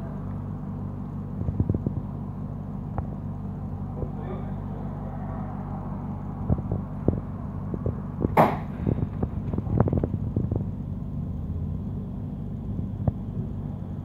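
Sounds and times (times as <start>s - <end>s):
tram running hum: 0.0s - 14.0s
loud rush of noise: 3.8s - 7.8s.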